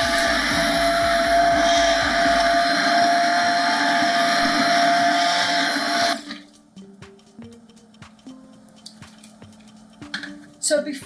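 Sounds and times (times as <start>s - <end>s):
immersion blender motor running: 0.0s - 6.4s.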